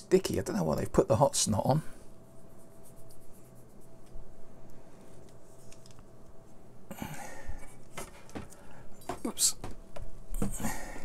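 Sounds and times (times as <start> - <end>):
faint clicks and rubbing: 2.8 - 6.4.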